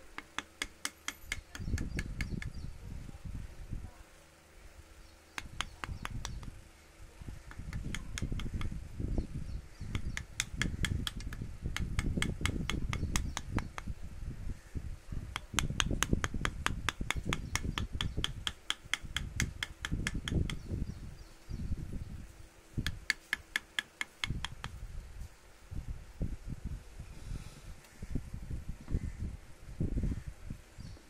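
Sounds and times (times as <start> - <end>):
mallet tapping chisel into wood: 0.2 - 2.5, 5.4 - 6.5, 7.5 - 8.7, 9.9 - 13.9, 15.3 - 20.7, 22.8 - 24.8.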